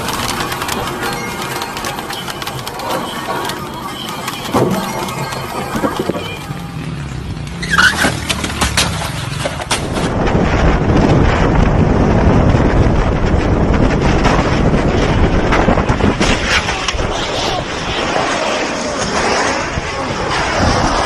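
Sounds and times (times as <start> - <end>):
wind buffeting microphone: 8.6 - 21.0.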